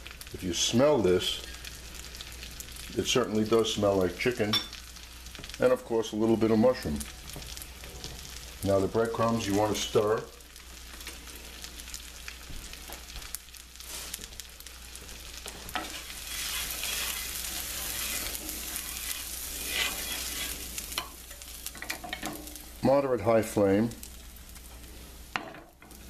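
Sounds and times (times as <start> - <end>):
breadcrumbs sizzling in butter: 0.0 - 26.0
wooden spoon scraping a pan: 15.0 - 22.4.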